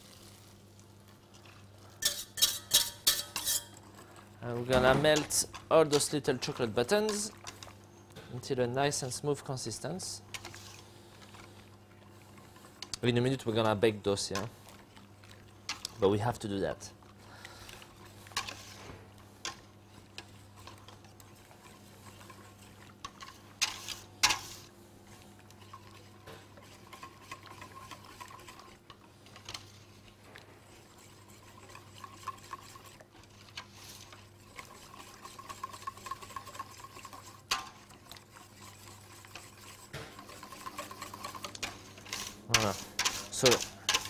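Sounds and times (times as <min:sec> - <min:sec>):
whisk scraping metal bowl: 0:02.0 - 0:07.7, 0:17.7 - 0:24.7, 0:25.4 - 0:44.0
whisk tapping bowl: 0:25.8 - 0:29.6, 0:30.9 - 0:44.0.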